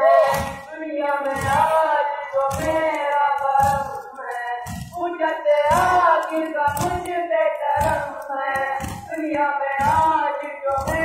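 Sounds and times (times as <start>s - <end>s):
person singing lament: 0.0s - 8.6s
low regular beats: 0.0s - 11.0s.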